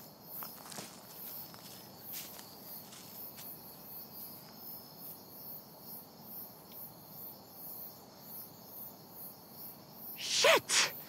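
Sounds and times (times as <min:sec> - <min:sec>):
insects chirping: 0:00.0 - 0:11.0
steady hiss: 0:10.2 - 0:11.0.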